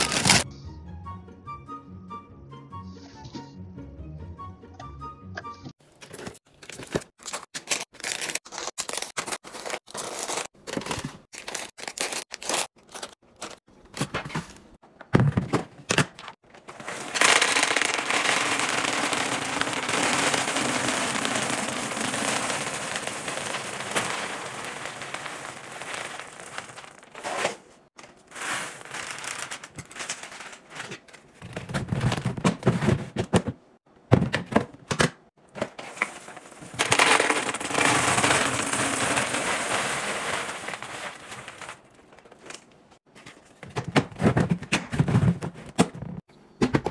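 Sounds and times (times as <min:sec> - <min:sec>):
cereal pouring into container: 0:00.0 - 0:00.4, 0:16.7 - 0:27.6, 0:28.3 - 0:30.6, 0:35.9 - 0:41.8
foil pouches crinkling: 0:00.0 - 0:00.4, 0:06.4 - 0:13.6, 0:16.7 - 0:30.9, 0:35.8 - 0:42.6.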